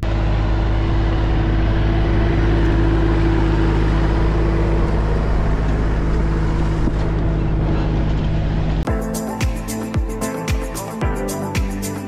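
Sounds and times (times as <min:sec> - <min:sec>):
tractor diesel engine under load: 0:00.0 - 0:08.9.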